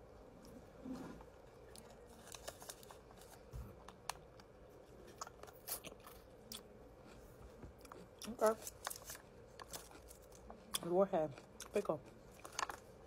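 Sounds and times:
pickle being bitten and chewed: 4.0s - 13.0s.

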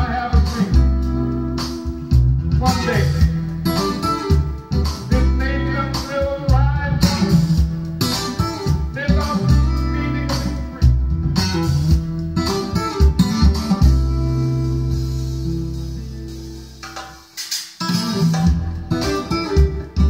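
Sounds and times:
steady bass line: 0.0s - 17.1s, 18.2s - 20.0s
bending guitar notes: 0.0s - 20.0s.

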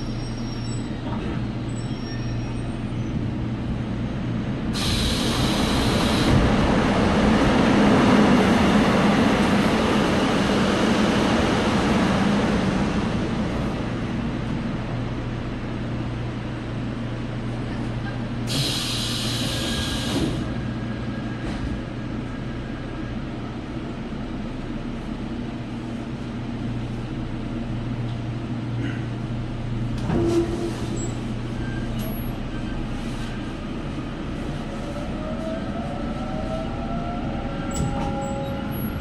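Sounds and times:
train car low hum: 0.0s - 39.0s.

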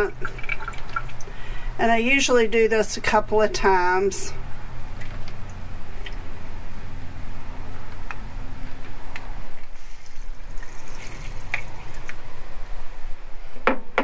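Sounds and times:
tap water running into a bowl: 0.1s - 1.3s, 9.6s - 12.2s.

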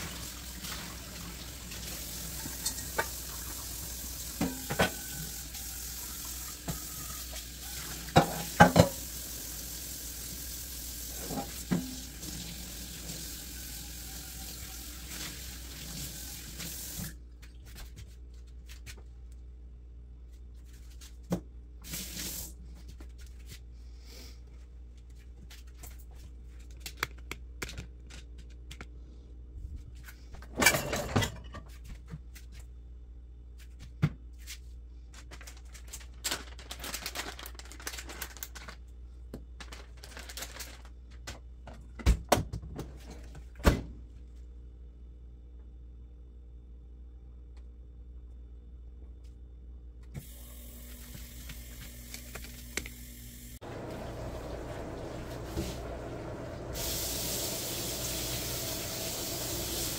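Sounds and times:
faucet running into sink: 0.0s - 17.1s, 53.6s - 59.9s
metal and dishes clinking: 2.6s - 3.2s, 30.5s - 31.8s.

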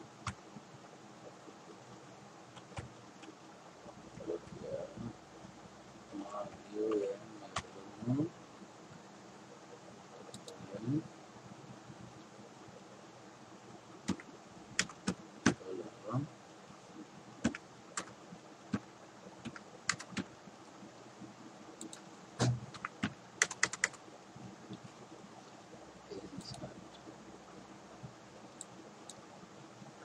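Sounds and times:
computer keyboard keystrokes: 14.1s - 15.6s, 17.4s - 18.1s, 19.4s - 20.3s, 22.7s - 24.0s.

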